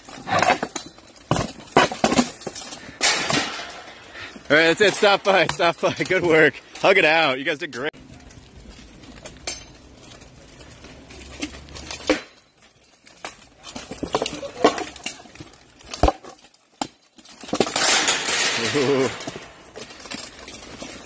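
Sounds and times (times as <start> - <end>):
plate armor clanking: 17.3 - 21.0.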